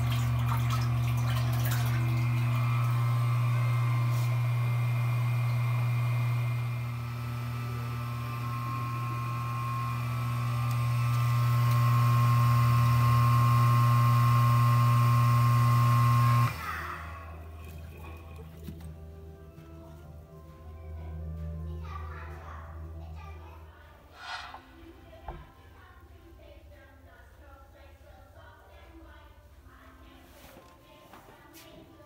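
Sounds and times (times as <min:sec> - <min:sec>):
electric pump humming: 0:00.0 - 0:19.2.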